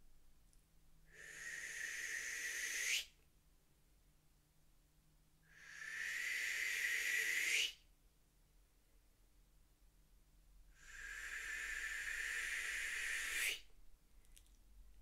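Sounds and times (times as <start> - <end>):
person blowing breathy hisses: 1.1 - 3.2, 5.5 - 7.8, 10.7 - 13.7.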